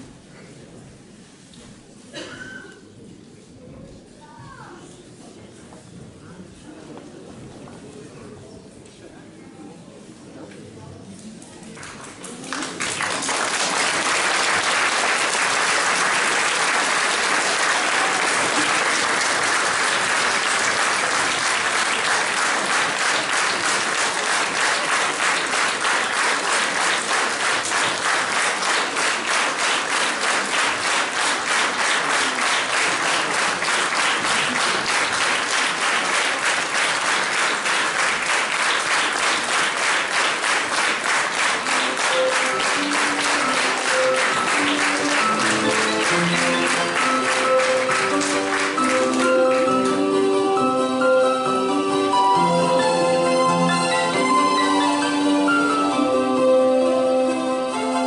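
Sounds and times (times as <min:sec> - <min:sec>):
audience applauding: 0:11.8 - 0:49.9.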